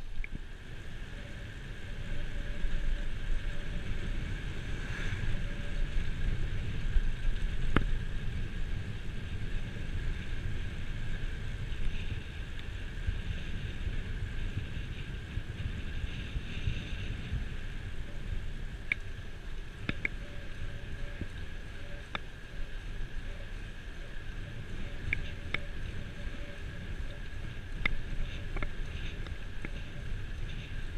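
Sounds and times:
bicycle rumble on asphalt: 0.0 - 30.9
wind buffeting microphone: 0.0 - 30.9.

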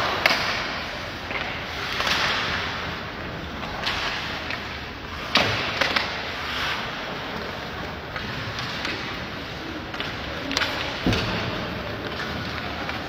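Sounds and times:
hockey sticks and puck cracking: 0.0 - 13.0
skates scraping ice: 0.0 - 13.0.

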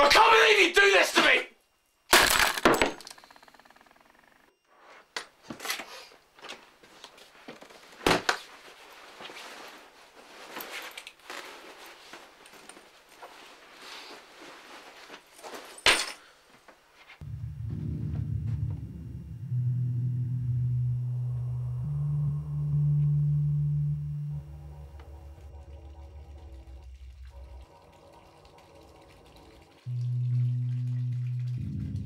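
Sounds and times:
clothes rustling: 6.4 - 17.2.

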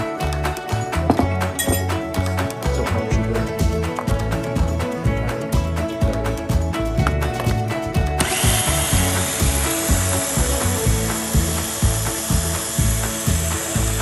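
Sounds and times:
background music with steady beat: 0.0 - 14.0
electric blender grinding: 8.2 - 14.0.

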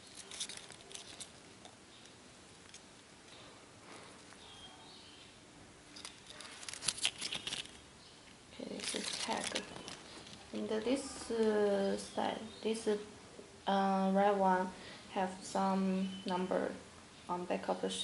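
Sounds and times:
paper tag rustling: 0.0 - 1.5, 5.9 - 7.8, 8.6 - 10.9.

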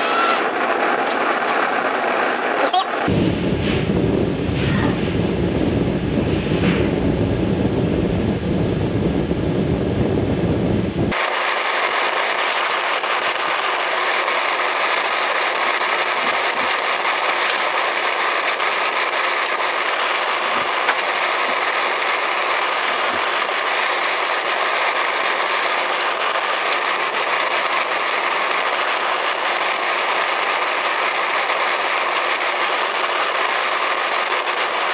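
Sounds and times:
deep rumbling noise: 0.4 - 34.9
gas forge burner hiss: 11.1 - 34.9.

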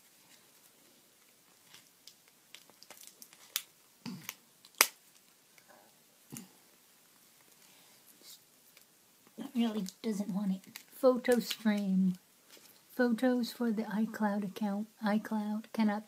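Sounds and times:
plastic wrapper crinkling: 0.2 - 5.6, 7.4 - 12.9.

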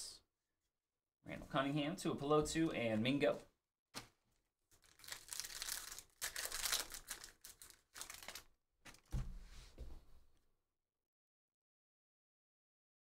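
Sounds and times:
foil wrapper tearing and crinkling: 4.8 - 9.1.

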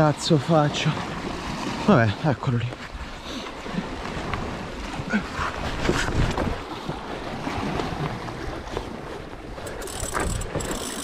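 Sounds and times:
waves splashing against rocks: 3.5 - 11.0
wind buffeting microphone: 3.6 - 11.0.

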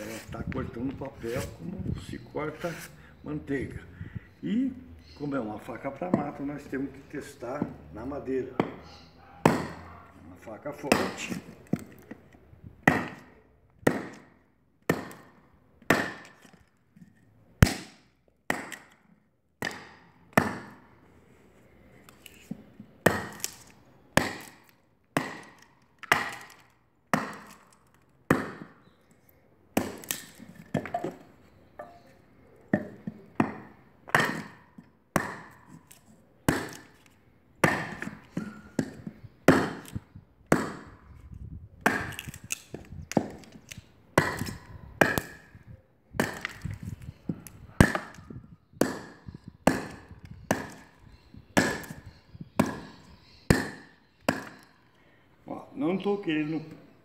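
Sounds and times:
knife chopping wood: 8.6 - 8.8, 9.4 - 9.9, 10.8 - 12.2, 12.8 - 16.6, 17.6 - 20.9, 22.4 - 28.8, 29.8 - 31.2, 32.7 - 41.0, 41.8 - 51.0, 51.6 - 54.7.

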